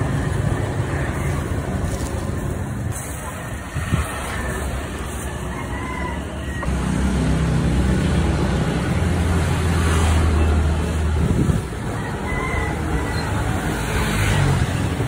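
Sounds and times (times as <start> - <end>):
street traffic noise: 0.0 - 15.0
vehicle engine humming nearby: 0.0 - 15.0.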